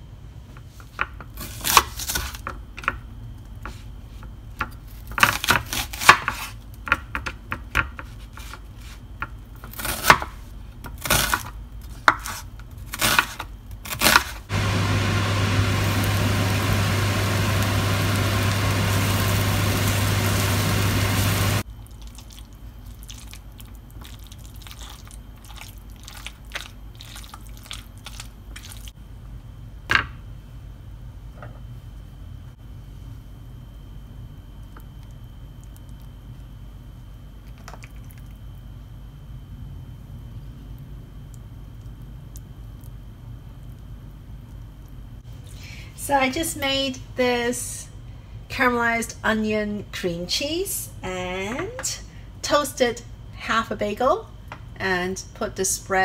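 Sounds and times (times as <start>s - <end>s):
knife cutting onion on board: 10.9s - 14.4s
loud hiss with low hum: 14.5s - 21.6s.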